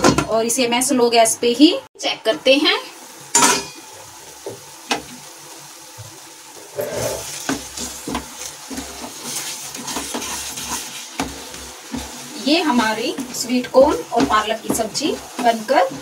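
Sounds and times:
sharp metal clank: 3.3 - 3.8
spoon stirring and scraping pan: 6.1 - 16.0.

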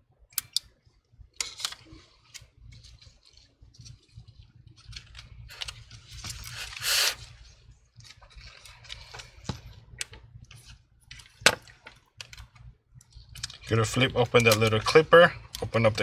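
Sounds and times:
clicks of plastic and metal parts: 0.3 - 0.7
gloved hands scraping and shuffling: 1.5 - 11.4.

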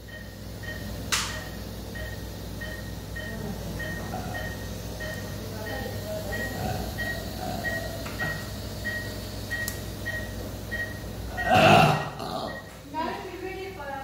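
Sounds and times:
patient monitor beeping: 0.0 - 12.8
equipment hum: 0.0 - 14.0
sharp click: 1.1 - 1.4.

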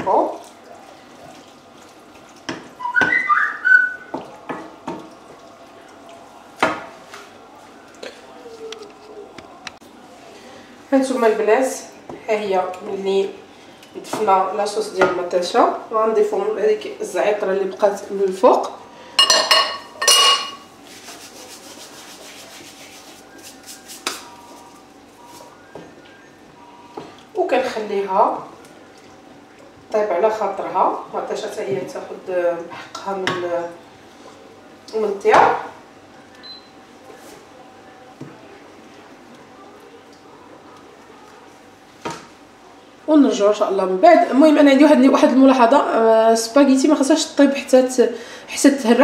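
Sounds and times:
whistle-like tone: 2.8 - 4.1, 25.2 - 26.9
gloved palms rubbing: 20.8 - 24.6.

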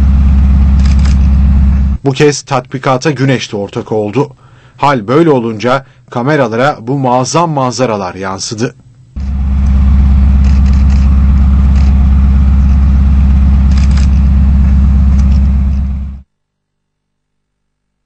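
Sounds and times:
tank engine idling: 0.0 - 2.0, 9.2 - 16.2.

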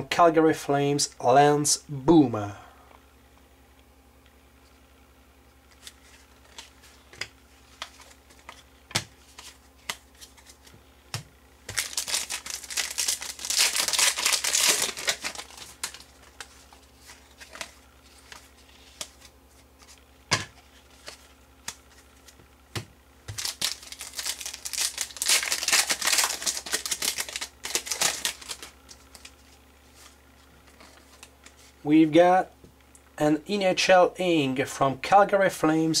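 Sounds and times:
card wrappers crinkling and tearing: 5.7 - 10.8, 11.6 - 20.0, 23.3 - 31.6
cards clicking and tapping: 5.8 - 12.3.

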